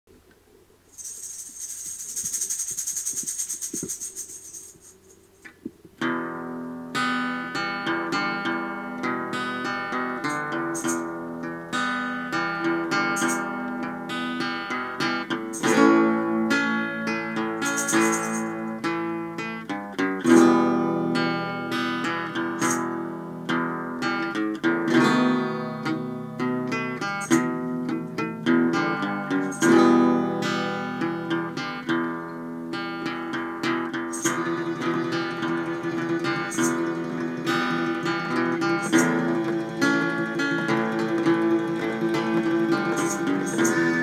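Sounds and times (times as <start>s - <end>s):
acoustic guitar music: 0.2s - 44.0s
sharp high percussive tap: 1.0s - 5.9s, 10.3s - 11.1s, 13.2s - 13.5s, 17.6s - 18.7s, 35.3s - 39.6s, 40.9s - 44.0s.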